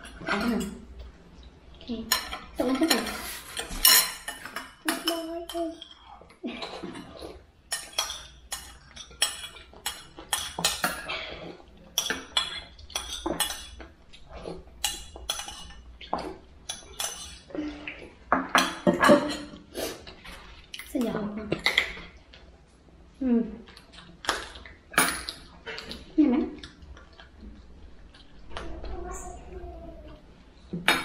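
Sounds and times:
cutlery clinking on plates: 2.1s - 6.0s, 6.7s - 13.9s, 14.8s - 17.5s, 18.3s - 19.6s, 24.2s - 26.0s, 30.8s - 31.0s.

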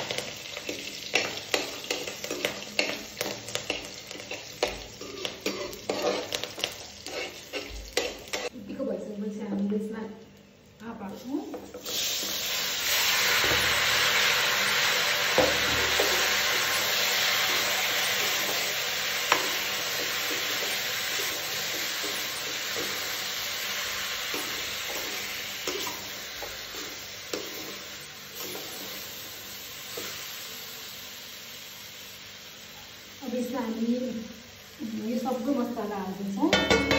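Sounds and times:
mango pieces sizzling in hot oil: 0.0s - 8.6s, 11.5s - 36.9s
slotted spoon scraping a pan: 1.1s - 8.5s.

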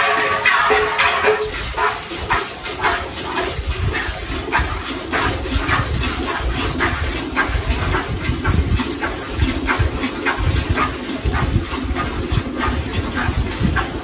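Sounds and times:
milk squirting into metal pail: 0.0s - 14.0s.

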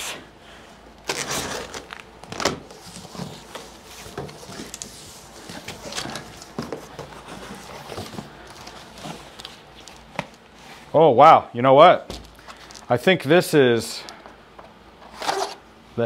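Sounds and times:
cardboard rustling and scraping: 1.0s - 10.9s, 15.0s - 15.6s.

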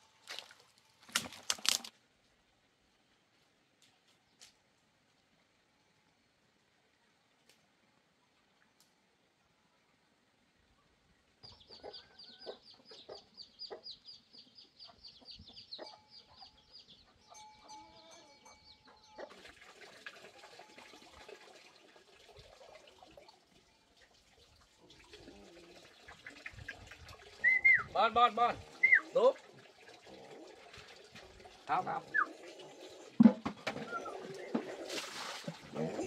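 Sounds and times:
chickens clucking: 11.5s - 19.4s, 24.8s - 27.8s, 28.7s - 36.0s.

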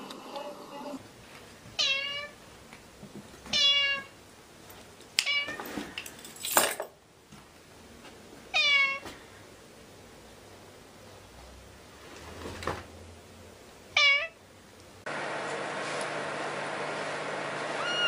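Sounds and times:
cat meowing: 1.8s - 2.4s, 3.5s - 4.1s, 8.5s - 9.0s, 14.0s - 14.4s, 17.8s - 18.0s.

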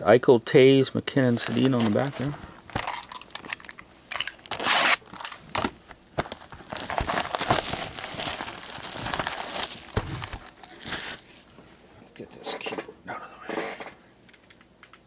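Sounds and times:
plastic wrap crinkling: 1.3s - 11.5s
plastic wrap tearing: 1.4s - 11.4s.

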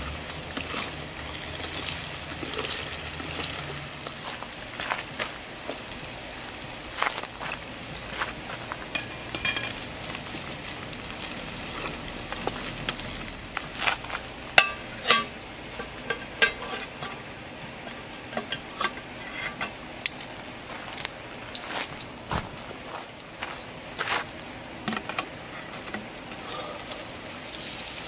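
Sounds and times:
vegetables sizzling in a frying pan: 0.0s - 18.1s, 26.4s - 28.0s
metal clinks and scrapes: 14.6s - 17.2s.

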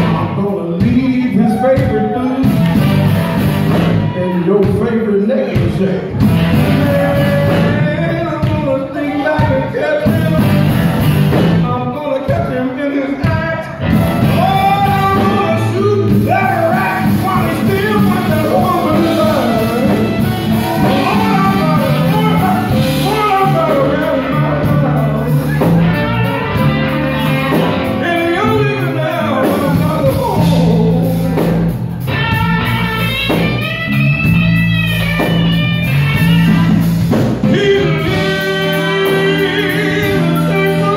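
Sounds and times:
man singing: 0.0s - 3.0s, 4.0s - 31.8s, 35.2s - 40.9s
drums: 0.0s - 40.9s
electric guitars: 0.0s - 40.9s
saxophone: 13.9s - 29.2s, 32.1s - 40.9s
trumpet: 14.0s - 29.3s.

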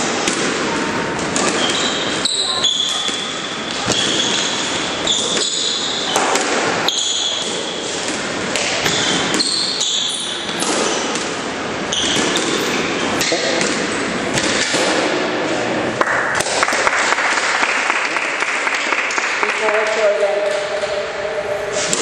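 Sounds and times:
squash ball smacks: 0.1s - 1.8s, 2.9s - 9.6s, 10.4s - 15.4s, 16.2s - 16.8s
shoes squeaking on court floor: 0.6s - 14.7s.

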